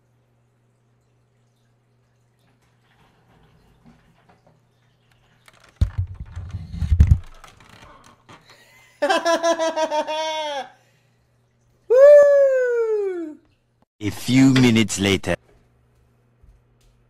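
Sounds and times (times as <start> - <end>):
low thumps and clicks of sitting down: 5.5 - 8.1
man laughing hard: 9.0 - 10.8.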